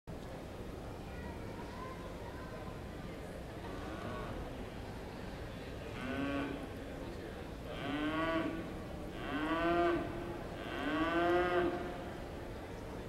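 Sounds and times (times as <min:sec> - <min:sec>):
cattle mooing: 0:07.7 - 0:08.6, 0:09.2 - 0:11.8.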